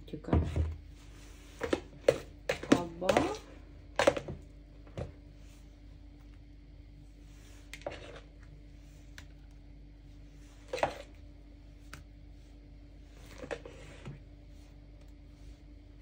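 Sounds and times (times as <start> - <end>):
steady low hum: 0.0 - 16.0
spatula knocking and scraping: 1.4 - 5.1.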